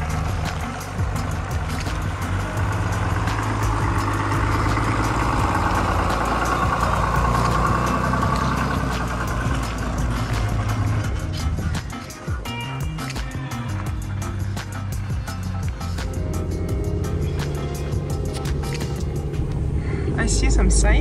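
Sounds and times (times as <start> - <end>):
pickup truck engine running: 0.0 - 21.0.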